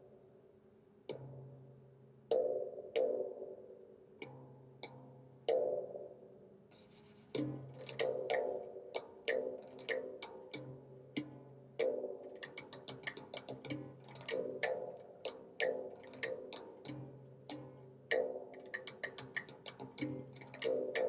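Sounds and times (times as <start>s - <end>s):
hand drum solo: 9.4s - 15.0s, 15.7s - 21.0s.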